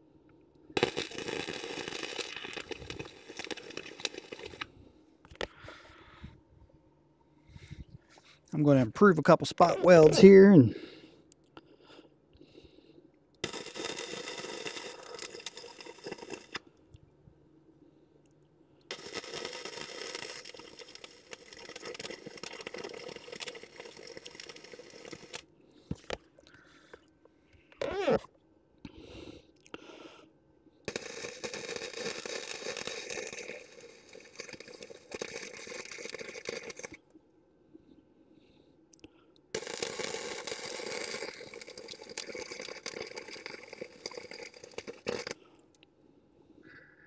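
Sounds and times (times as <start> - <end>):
welder arc crackling: 0.8 - 4.7, 13.4 - 16.6, 18.9 - 25.5.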